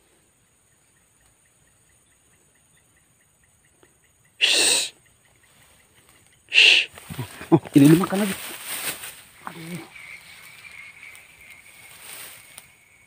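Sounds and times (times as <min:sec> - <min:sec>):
person exhaling breathily: 0:04.4 - 0:04.9.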